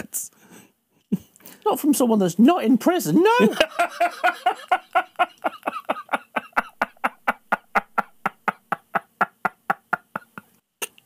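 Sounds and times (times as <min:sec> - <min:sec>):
man laughing hard: 0:03.3 - 0:10.6.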